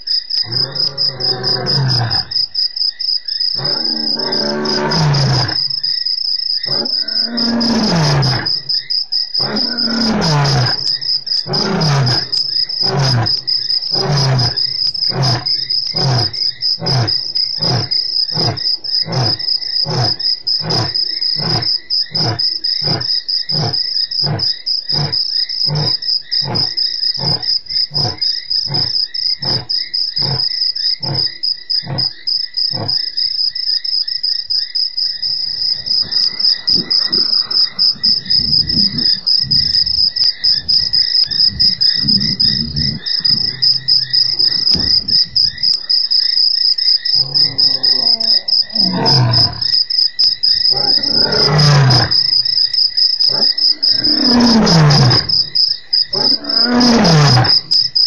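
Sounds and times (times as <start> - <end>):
crickets chirring: 0.0 - 58.0
lion roaring and grunting: 0.4 - 2.4, 3.6 - 5.8, 6.7 - 8.7, 9.4 - 32.1, 35.4 - 46.1, 47.1 - 49.8, 50.6 - 52.5, 53.2 - 57.9
low rumbling: 35.6 - 45.9.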